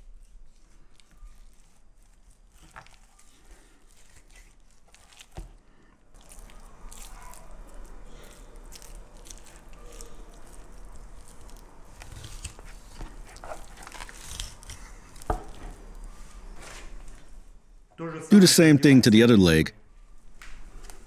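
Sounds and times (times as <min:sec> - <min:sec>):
wet squishing with clicks: 0:00.2 - 0:16.2.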